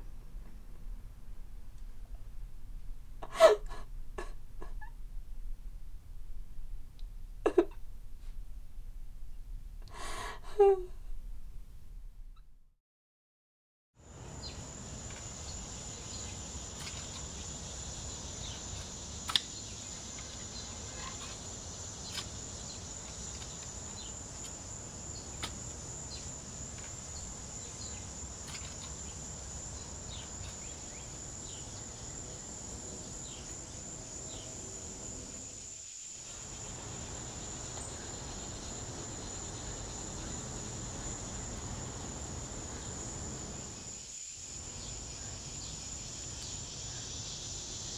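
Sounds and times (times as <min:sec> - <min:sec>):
low background rumble: 0:00.0 - 0:12.6
crickets trilling: 0:14.0 - 0:47.9
faint sharp clicks: 0:19.2 - 0:19.6.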